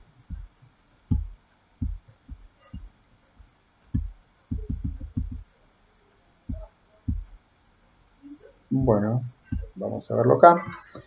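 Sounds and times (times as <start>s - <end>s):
dull low thuds: 0.0s - 5.5s, 6.5s - 7.4s, 8.7s - 9.8s.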